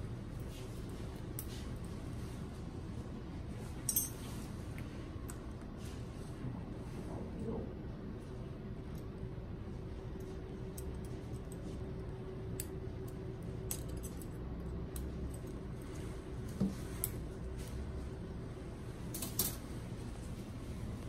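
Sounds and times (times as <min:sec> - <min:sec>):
metal instruments clinking: 0:03.8 - 0:04.4.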